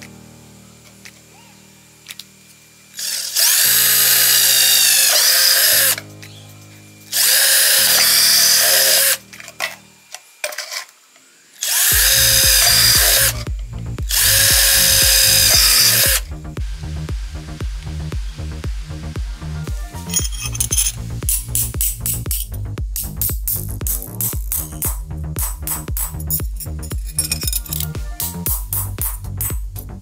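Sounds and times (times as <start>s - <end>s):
cordless drill boring through plastic: 3.0s - 6.0s, 7.1s - 9.2s, 11.6s - 13.4s, 14.1s - 16.2s.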